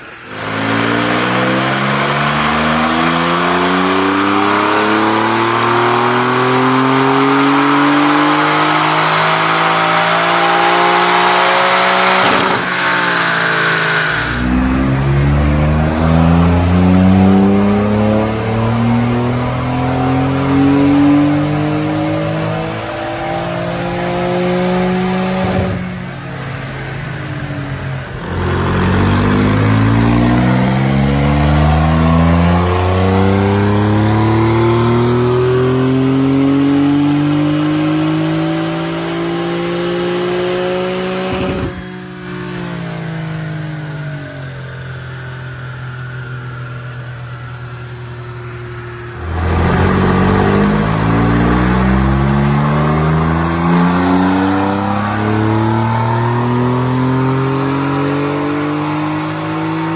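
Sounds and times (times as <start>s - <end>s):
car engine revving under load: 0.0s - 59.9s
exhaust pop: 12.1s - 14.6s.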